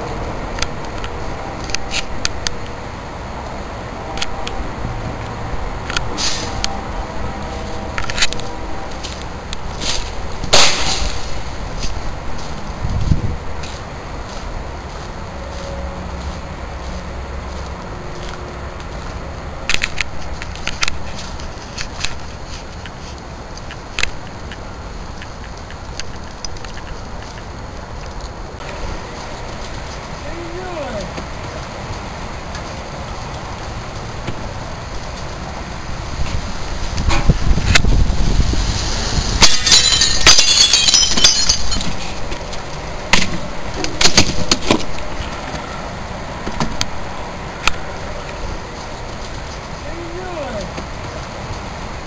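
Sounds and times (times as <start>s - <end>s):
outdoor background rumble: 0.0s - 52.0s
plywood sheet hitting ground: 9.9s - 11.5s
window glass smashing: 39.2s - 42.2s
glass shards tinkling: 39.4s - 42.3s.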